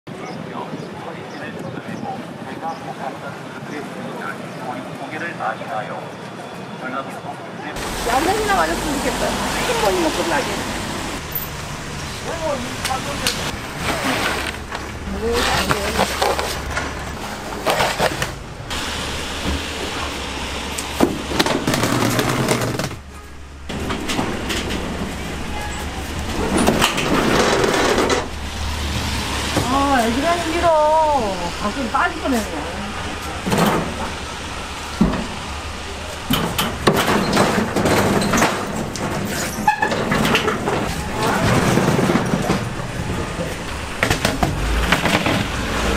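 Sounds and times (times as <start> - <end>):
plastic boxes and stools clattering: 12.9 - 18.4, 21.0 - 23.1, 23.7 - 28.3, 36.3 - 43.1, 44.0 - 45.9
metal cauldrons knocking and scraping: 21.0 - 28.4, 36.2 - 43.2.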